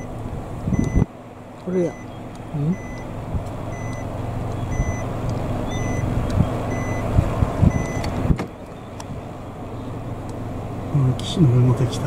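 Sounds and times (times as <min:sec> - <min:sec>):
low engine rumble: 0:00.0 - 0:12.0
backup alarm beeping: 0:00.7 - 0:01.1, 0:01.7 - 0:03.1, 0:03.7 - 0:06.1, 0:06.7 - 0:07.1, 0:07.7 - 0:08.1.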